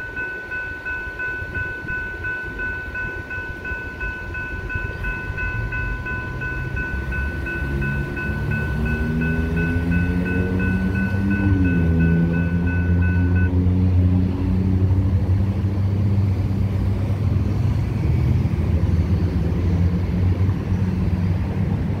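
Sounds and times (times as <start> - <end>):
railroad crossing bell ringing: 0.0 - 13.6
vehicles rumbling over crossing: 0.0 - 22.0.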